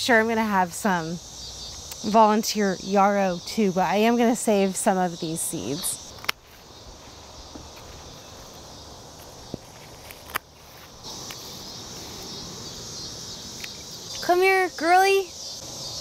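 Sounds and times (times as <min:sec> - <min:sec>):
high insect chirring: 0:00.0 - 0:16.0
dry seed heads rustling and clicking: 0:09.2 - 0:11.5.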